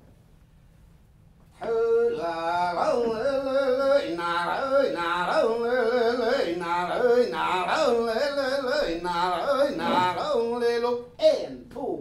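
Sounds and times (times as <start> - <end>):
man singing solo: 1.6 - 11.0.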